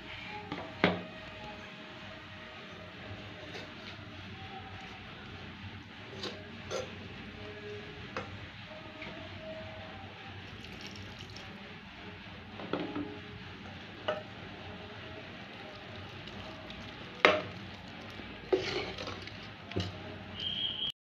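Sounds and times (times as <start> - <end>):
spoon scraping metal pot: 18.5 - 20.0.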